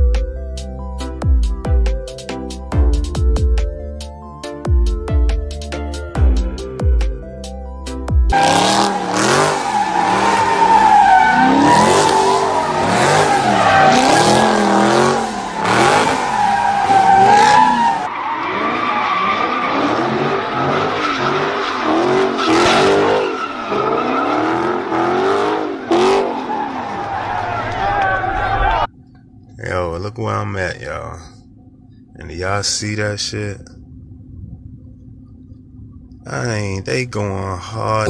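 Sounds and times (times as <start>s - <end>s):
car engine revving: 8.3s - 29.6s
tyres squealing: 8.4s - 28.9s.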